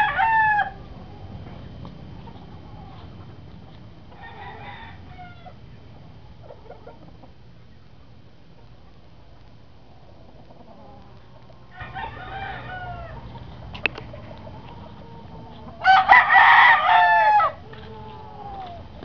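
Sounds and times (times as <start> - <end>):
rooster crowing: 0.0 - 0.8, 4.1 - 5.6, 11.7 - 13.3, 15.0 - 18.8.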